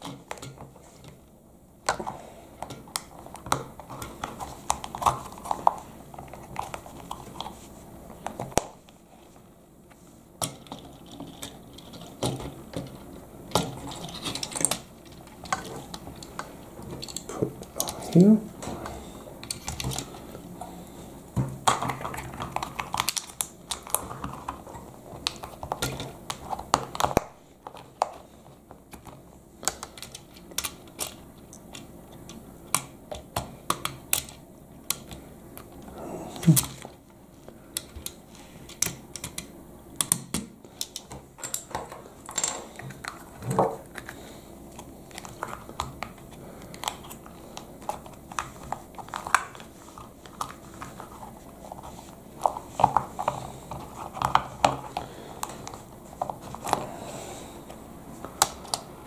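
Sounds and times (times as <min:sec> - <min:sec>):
plastic parts clicking and tapping: 0:21.4 - 0:35.8, 0:37.7 - 0:44.2.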